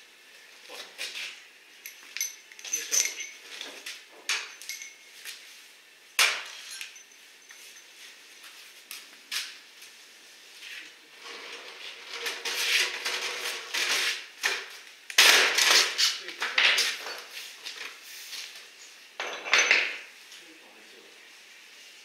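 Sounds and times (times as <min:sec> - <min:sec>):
metal tools clinking: 0:01.8 - 0:05.3, 0:06.5 - 0:08.1, 0:19.2 - 0:20.0.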